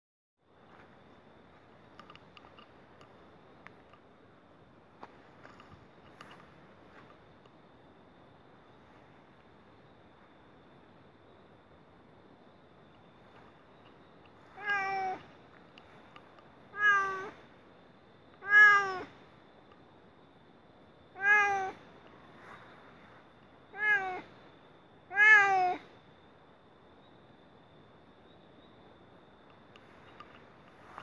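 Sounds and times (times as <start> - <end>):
cat meowing: 14.5 - 15.3, 16.7 - 17.4, 18.4 - 19.1, 21.2 - 21.8, 23.7 - 24.3, 25.1 - 25.9.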